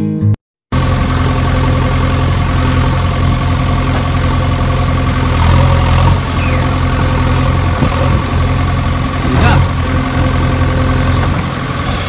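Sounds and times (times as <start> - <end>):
toy excavator motor droning: 5.1 - 7.8.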